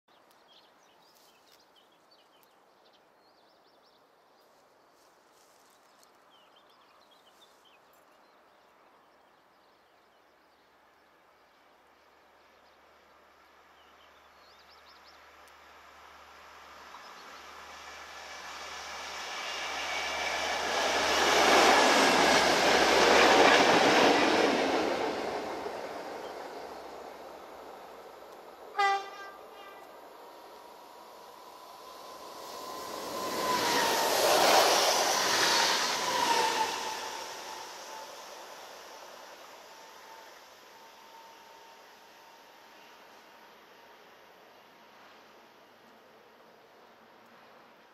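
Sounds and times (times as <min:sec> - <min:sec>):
train wheel and rail noise: 0:15.0 - 0:47.9.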